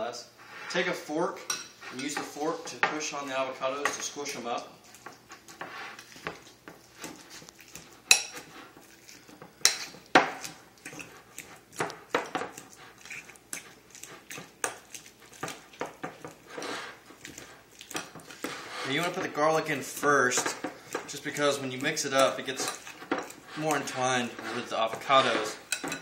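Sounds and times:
fork clinking against ceramic bowl: 25.7s - 26.0s.

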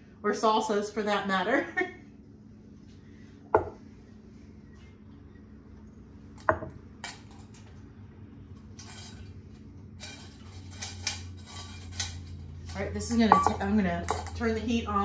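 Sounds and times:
steady low hum: 0.0s - 15.0s
utensil knocking against pot: 13.3s - 13.6s.

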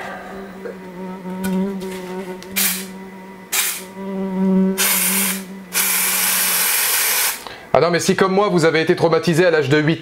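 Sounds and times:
fly buzzing: 0.4s - 7.4s
aerosol spray hissing: 2.6s - 2.9s, 3.5s - 3.9s, 4.8s - 7.4s.

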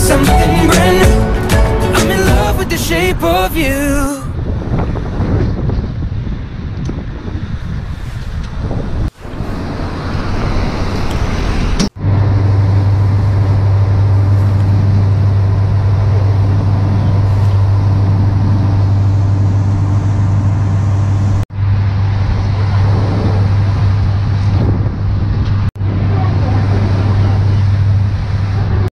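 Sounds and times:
boat engine droning: 0.0s - 4.1s, 8.6s - 28.9s
street traffic: 0.0s - 28.9s
wind: 0.0s - 28.9s
water noise: 8.4s - 28.9s.

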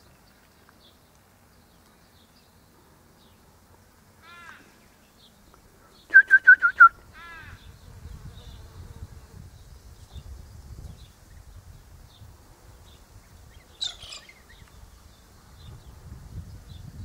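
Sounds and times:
faint arching bird call: 4.2s - 4.8s, 6.0s - 7.8s, 13.7s - 14.6s
bird whistling notes: 6.1s - 7.0s, 13.8s - 14.6s.

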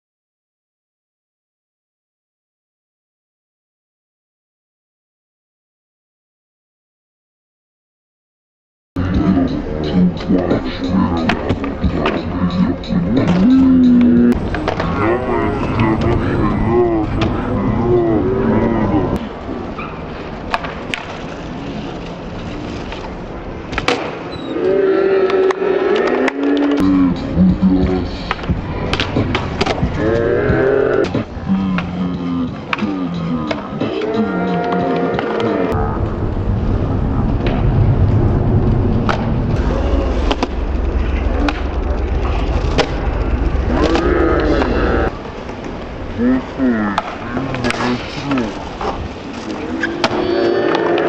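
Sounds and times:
skateboards rolling on concrete: 10.2s - 37.8s, 39.0s - 51.0s
skateboard tail clacks: 20.4s - 21.2s, 27.8s - 30.0s.

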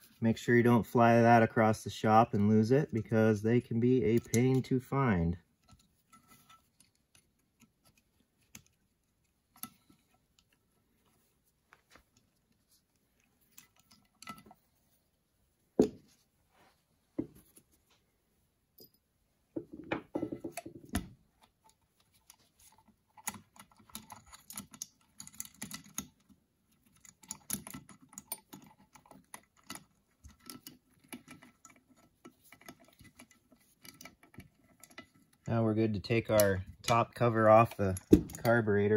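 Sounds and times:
small metal parts clicking: 21.4s - 35.5s.

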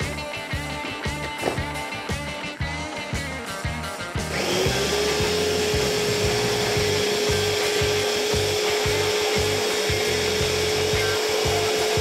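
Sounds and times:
electric mini chopper whining: 4.3s - 12.0s.

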